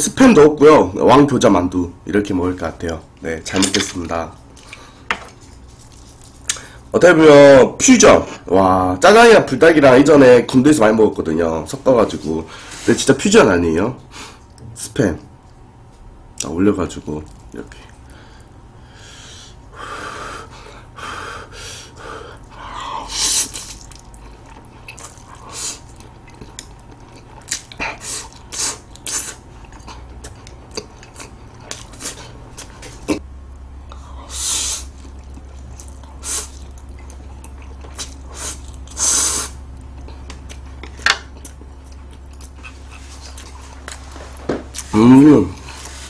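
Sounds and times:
wet chewing: 4.5s - 6.7s, 23.4s - 33.2s, 34.8s - 44.9s.

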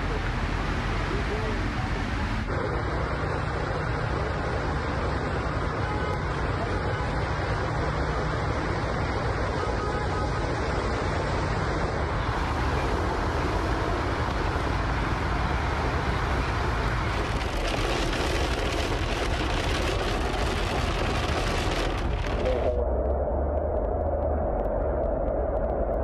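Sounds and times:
heavy rain: 0.0s - 23.1s
rushing floodwater: 5.3s - 22.8s.

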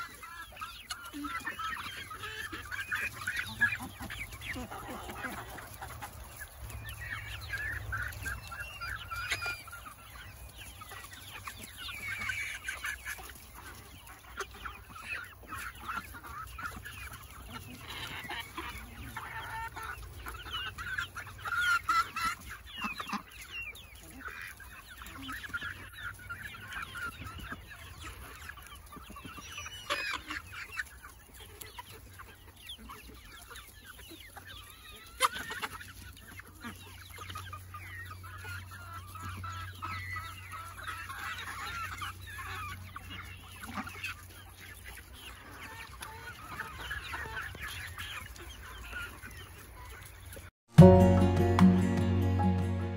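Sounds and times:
hens clucking: 0.0s - 52.9s.

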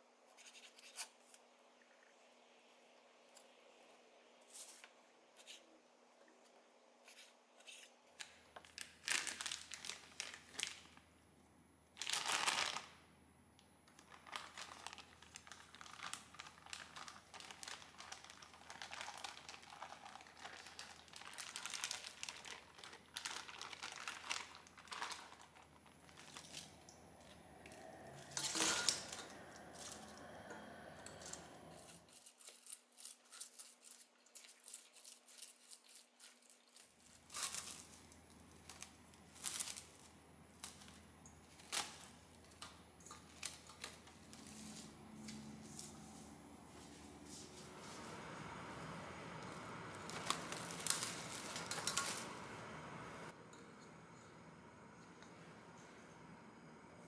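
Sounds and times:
low steady hum: 1.2s - 33.4s, 36.4s - 57.0s
packaging crinkling: 8.1s - 11.0s, 12.0s - 12.9s, 13.9s - 30.3s, 31.1s - 46.0s, 49.3s - 52.4s.

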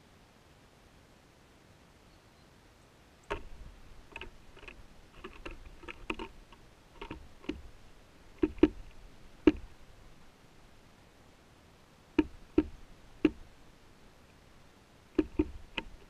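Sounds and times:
bird pecking on wooden table: 3.3s - 7.7s, 8.3s - 9.8s, 12.2s - 13.4s, 15.2s - 16.0s.

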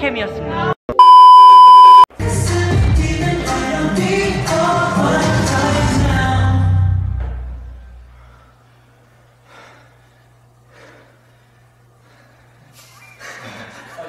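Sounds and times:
backing music: 2.2s - 7.0s.

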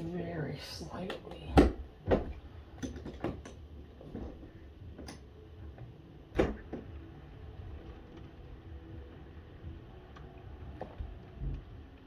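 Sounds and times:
faint rain hiss: 3.6s - 12.0s.

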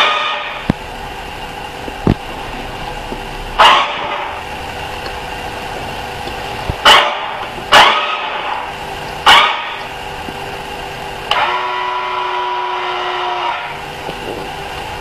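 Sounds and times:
steady horn-like tone: 0.0s - 0.7s, 2.3s - 4.8s, 6.8s - 9.9s, 11.3s - 13.8s.

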